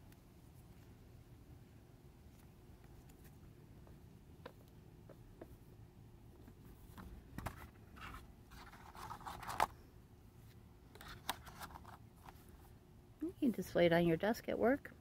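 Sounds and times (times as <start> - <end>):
cards and cardboard rustling: 6.4 - 9.8, 10.4 - 12.6.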